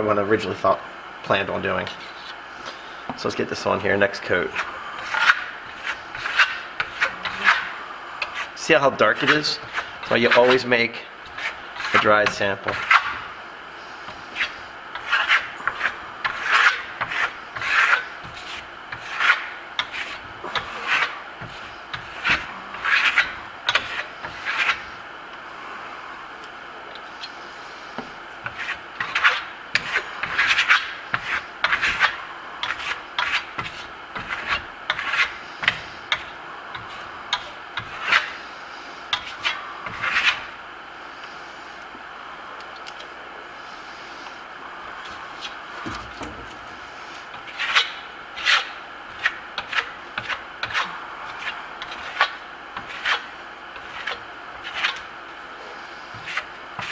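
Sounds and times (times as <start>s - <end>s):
steel trowel scraping: 5.0s - 8.5s, 14.4s - 24.8s.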